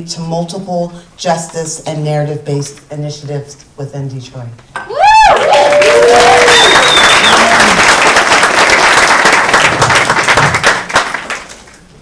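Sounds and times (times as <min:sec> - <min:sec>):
audience applauding: 0:05.0 - 0:11.9.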